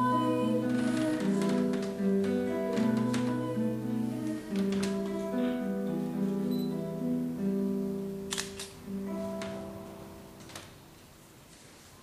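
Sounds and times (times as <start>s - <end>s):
slow instrumental guitar: 0.0s - 11.3s.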